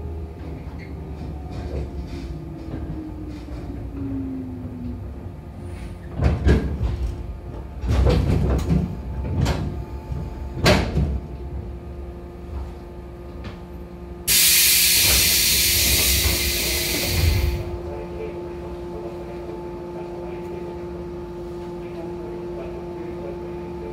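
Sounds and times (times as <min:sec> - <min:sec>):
steady train hum: 0:00.0 - 0:23.9
compressed air hiss: 0:14.3 - 0:17.6
pneumatic doors sliding open: 0:14.3 - 0:17.7.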